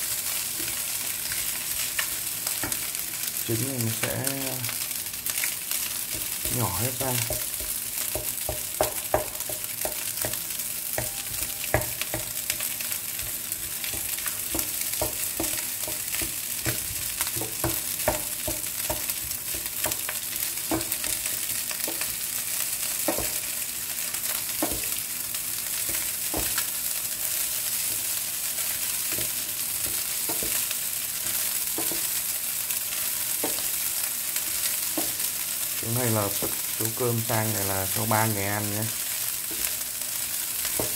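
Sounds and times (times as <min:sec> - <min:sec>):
rice sizzling in a frying pan: 0:00.0 - 0:40.9
spatula knocking and scraping pan: 0:06.0 - 0:22.2, 0:23.0 - 0:23.5, 0:24.3 - 0:25.0, 0:25.8 - 0:26.7, 0:29.0 - 0:32.2, 0:32.9 - 0:33.9, 0:34.5 - 0:35.4, 0:39.4 - 0:39.8, 0:40.6 - 0:40.9.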